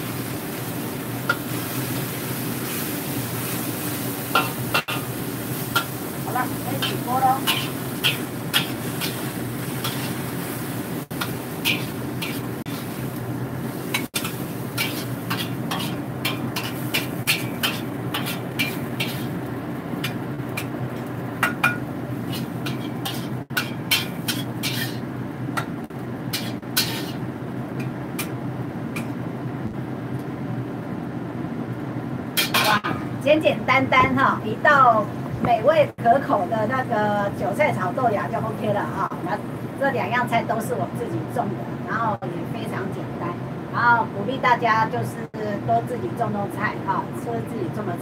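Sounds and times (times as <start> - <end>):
steady low hum: 0.0 - 48.0
metal spatula scraping a wok: 1.2 - 19.4, 20.0 - 25.1, 26.3 - 27.2.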